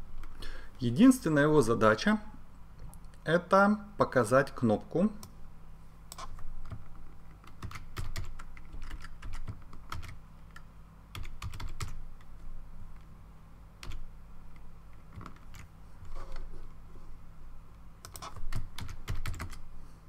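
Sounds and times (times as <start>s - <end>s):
faint low hum: 0.0s - 20.0s
computer keyboard typing: 6.1s - 12.0s, 13.8s - 14.1s, 15.0s - 15.7s, 18.0s - 19.6s.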